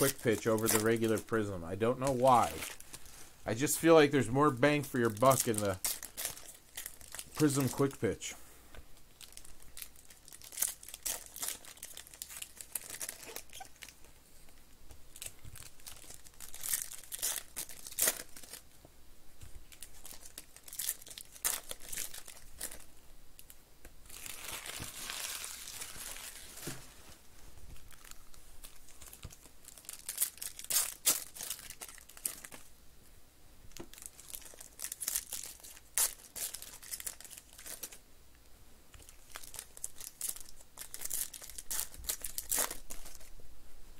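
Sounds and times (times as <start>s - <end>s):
foil wrappers crinkling: 0.0s - 8.3s, 9.0s - 14.0s, 15.1s - 18.7s, 19.6s - 32.7s, 33.7s - 38.0s, 38.9s - 43.3s
foil wrapper tearing rip: 5.0s - 8.0s, 9.2s - 13.9s, 15.7s - 18.6s, 24.1s - 26.7s, 29.2s - 32.6s, 34.0s - 38.0s, 39.1s - 43.3s.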